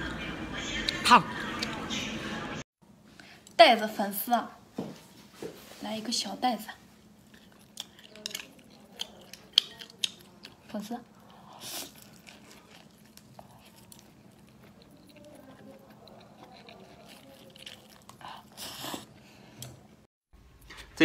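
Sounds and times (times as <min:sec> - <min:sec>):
person chewing food: 0:01.4 - 0:01.9, 0:07.1 - 0:19.9.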